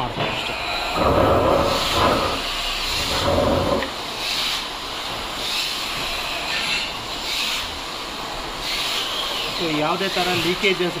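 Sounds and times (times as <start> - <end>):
loud machinery rushing: 0.5 - 4.1
short hisses: 0.8 - 4.7.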